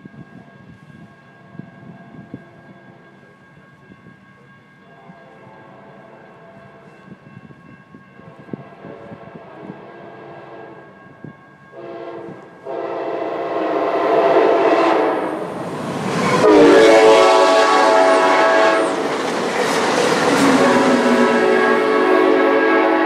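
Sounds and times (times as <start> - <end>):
train horn blasts: 4.9 - 7.0, 8.2 - 19.3, 19.9 - 23.0
train rushing past: 8.4 - 23.0.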